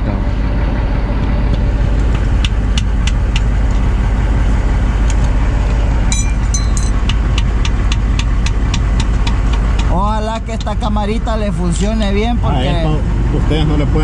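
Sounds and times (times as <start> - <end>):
low mechanical rumble: 0.0 - 14.0
rubber mallet tapping metal: 6.1 - 9.9.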